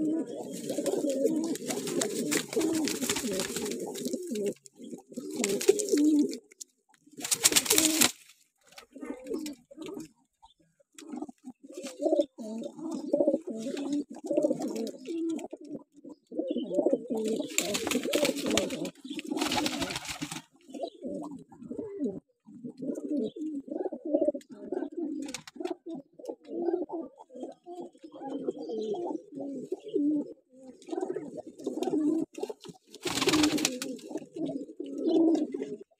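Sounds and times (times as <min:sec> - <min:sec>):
pigeons cooing: 0:00.0 - 0:06.5, 0:07.1 - 0:36.0.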